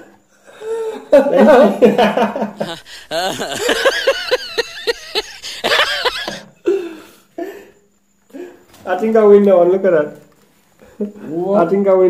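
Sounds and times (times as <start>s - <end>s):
laughter: 1.0s - 6.5s.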